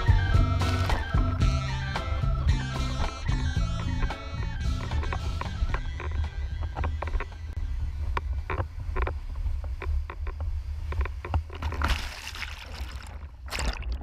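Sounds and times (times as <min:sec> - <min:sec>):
wind rumbling on microphone: 0:00.0 - 0:14.0
water slapping against board: 0:11.6 - 0:14.0.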